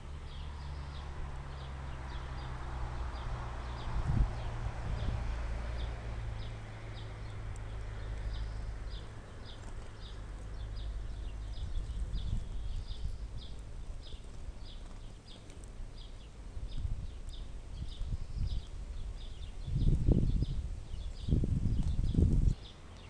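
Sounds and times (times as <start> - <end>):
wind rumble on microphone: 0.0 - 22.8.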